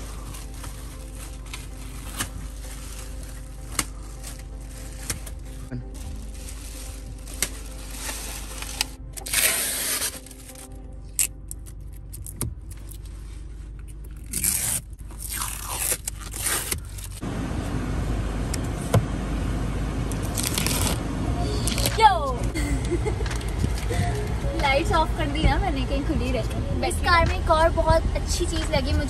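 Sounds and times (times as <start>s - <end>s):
air conditioning blowing: 0.0s - 9.5s, 12.0s - 29.0s
plastic wrap crackling and peeling: 0.0s - 17.2s, 20.1s - 24.5s.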